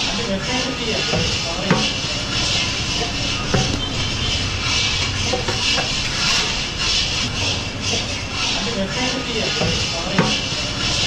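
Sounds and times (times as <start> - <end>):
wet grinder motor hum: 0.0 - 11.0.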